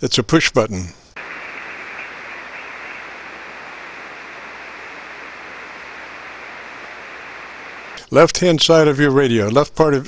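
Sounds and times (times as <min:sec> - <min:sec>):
shortwave radio hiss: 0:01.2 - 0:08.1.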